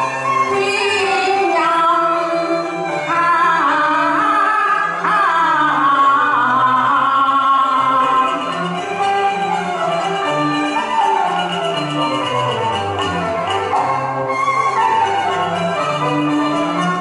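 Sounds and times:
instrumental accompaniment: 0.0 - 17.0
woman singing ornamented melody: 0.5 - 8.5.

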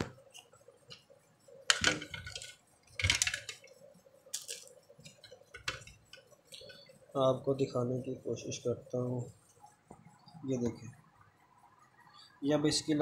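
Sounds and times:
faint steady hum: 0.0 - 13.0
plastic circuit board clattering: 1.7 - 6.2.

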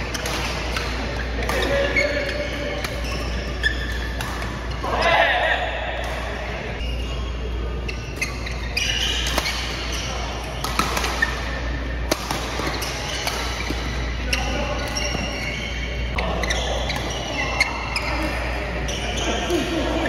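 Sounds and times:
rackets hitting shuttlecock: 0.0 - 6.9, 8.0 - 16.0.

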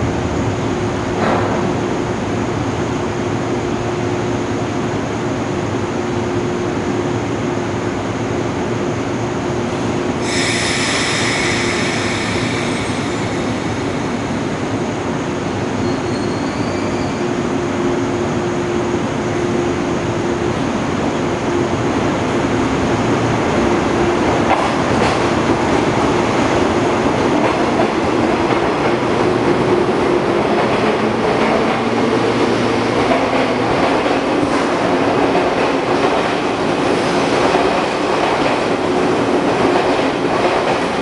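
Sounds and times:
electric train hum: 0.0 - 41.0
high-pitched hiss: 10.2 - 16.5.

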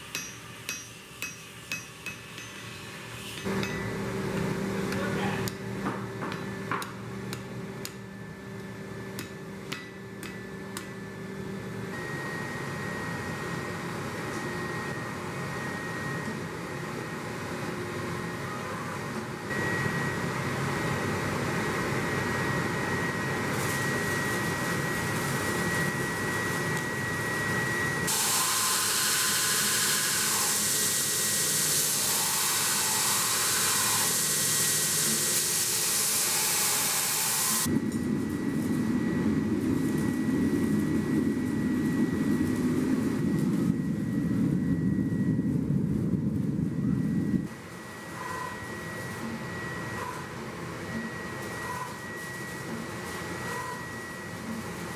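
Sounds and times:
hammer blows on anvil: 0.0 - 8.0, 9.1 - 11.0
steady hum: 0.0 - 54.9
belt grinder grinding steel: 28.1 - 37.7.

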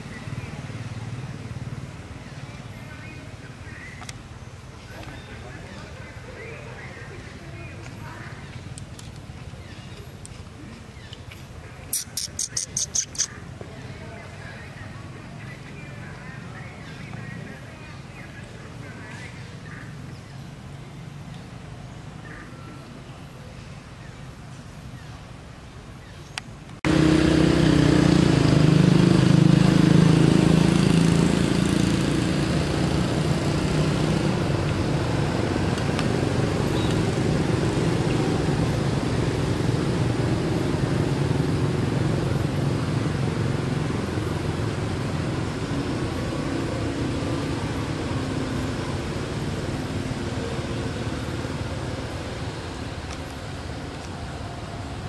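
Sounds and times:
vehicle engine rumble: 0.0 - 55.0.

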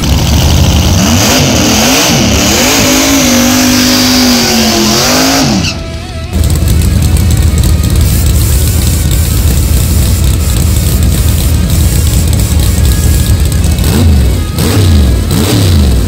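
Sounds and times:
tires spinning and squealing: 0.0 - 5.8
car engine revving: 0.0 - 16.0.

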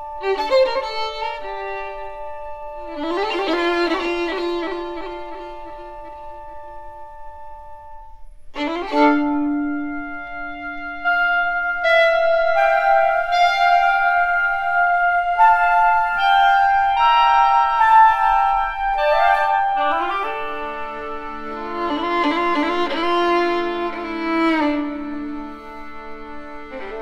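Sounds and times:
violin line: 0.0 - 27.0
chamber orchestra playing: 8.6 - 27.0.

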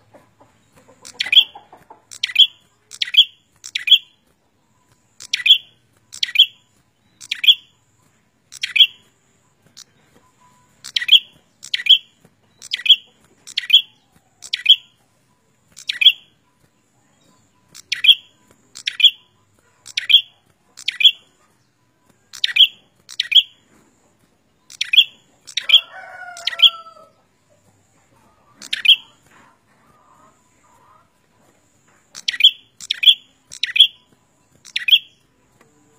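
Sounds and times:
bird singing sharp notes: 1.0 - 4.2, 4.8 - 7.8, 8.5 - 9.1, 9.8 - 15.0, 17.3 - 21.3, 32.2 - 35.2
lower two-tone bird call: 32.2 - 35.2.

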